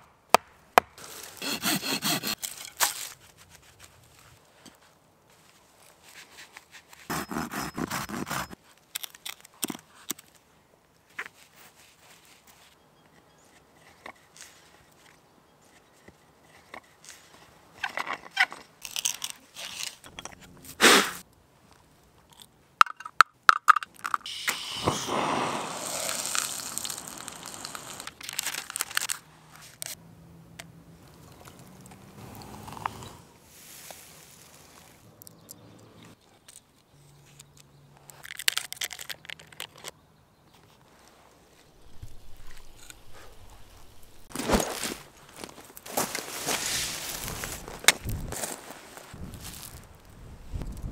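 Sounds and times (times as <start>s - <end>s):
drill bit boring into wood: 1.4s - 2.4s
hand auger boring into wood: 1.4s - 2.6s, 7.1s - 8.6s.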